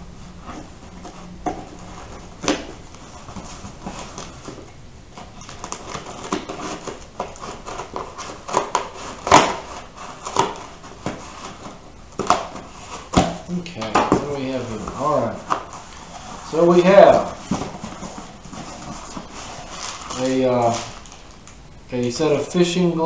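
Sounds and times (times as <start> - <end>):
scissors scraping through tape: 5.4 - 10.7.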